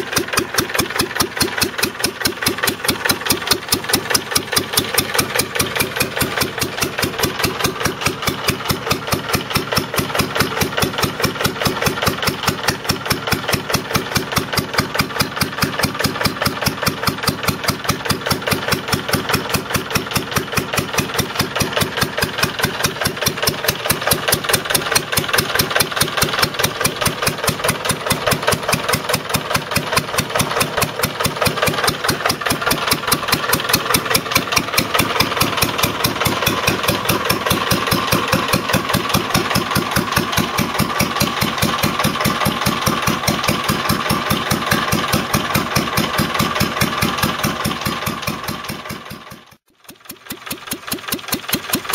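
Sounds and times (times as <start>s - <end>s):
stationary engine running: 0.0s - 51.9s.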